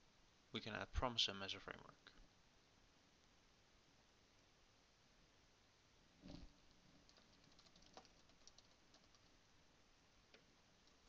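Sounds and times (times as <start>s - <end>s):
computer keyboard typing: 7.0s - 9.4s.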